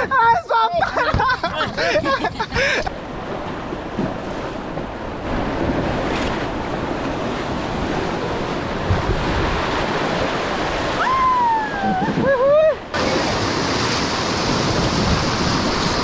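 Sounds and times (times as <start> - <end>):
wind noise on microphone: 1.5 - 16.0
river rapids rushing: 12.5 - 16.0.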